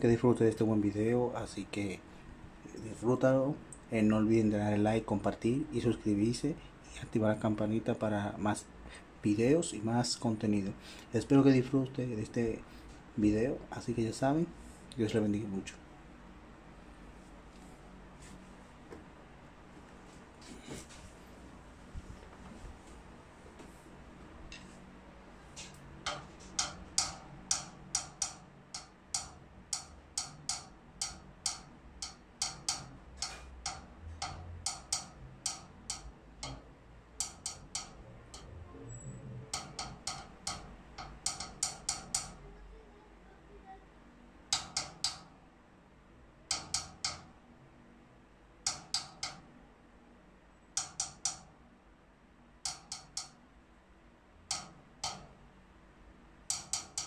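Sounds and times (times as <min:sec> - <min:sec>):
drumstick tapping snare and tom: 0:26.0 - 0:38.5, 0:39.5 - 0:42.4, 0:44.5 - 0:45.3, 0:46.5 - 0:47.3, 0:48.7 - 0:49.4, 0:50.8 - 0:51.5, 0:52.6 - 0:53.4, 0:54.5 - 0:55.3, 0:56.5 - 0:57.0.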